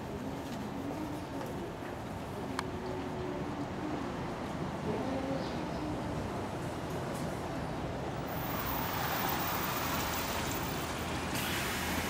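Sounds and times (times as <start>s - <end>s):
tyres hissing on wet pavement: 8.3s - 12.0s.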